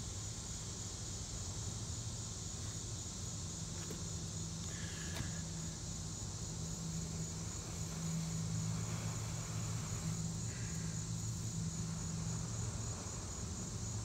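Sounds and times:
high steady hiss: 0.0s - 14.0s
low mechanical hum: 0.0s - 14.0s.

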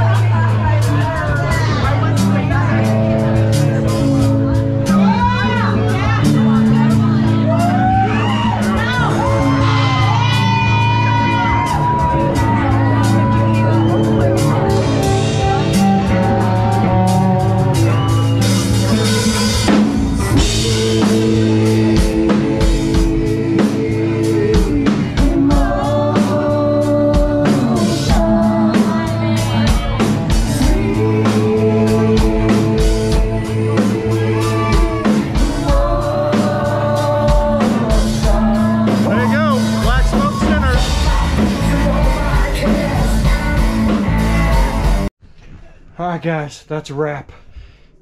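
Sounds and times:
drum kit beat: 0.0s - 45.1s
electric guitars: 0.0s - 45.1s
person singing: 0.0s - 45.1s.

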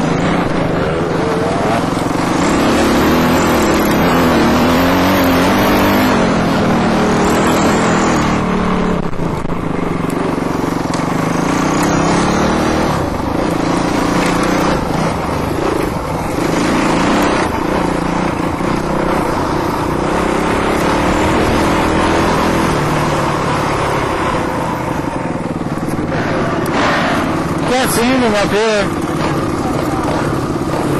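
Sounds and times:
constant rushing noise: 0.0s - 30.9s
dirt bike engine revving: 0.0s - 30.9s.

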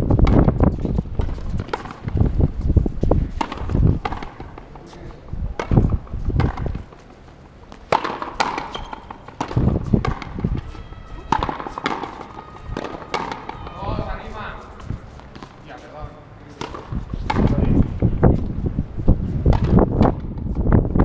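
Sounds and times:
wind rumble on microphone: 0.0s - 6.9s, 9.4s - 11.6s, 13.6s - 15.2s, 16.8s - 21.0s
ball cracking off rackets: 0.2s - 15.6s, 16.5s - 17.8s
ball smacking against wall: 5.6s - 6.8s, 7.8s - 10.6s, 11.3s - 13.7s.

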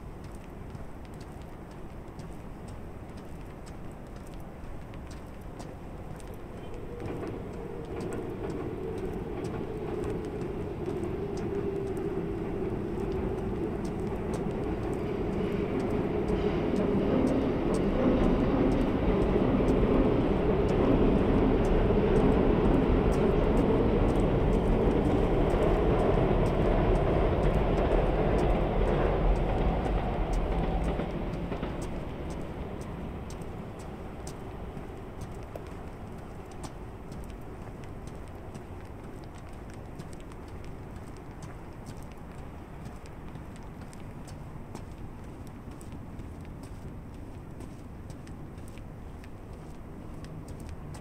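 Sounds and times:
train rumbling past: 0.0s - 51.0s
droning hum: 6.2s - 44.1s.

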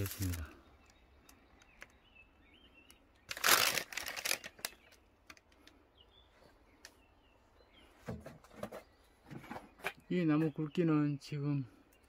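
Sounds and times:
plastic bag crinkling: 0.0s - 0.4s, 3.3s - 5.0s.

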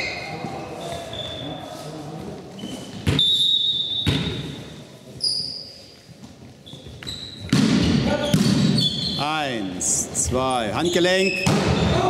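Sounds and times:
ball bouncing with hollow thuds: 2.9s - 4.6s, 6.8s - 8.8s, 11.4s - 12.0s
thin high squeaks: 5.2s - 6.0s.

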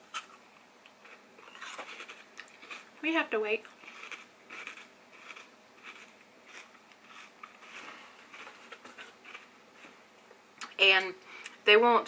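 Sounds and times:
chewing and sucking smacks: 3.8s - 9.5s.

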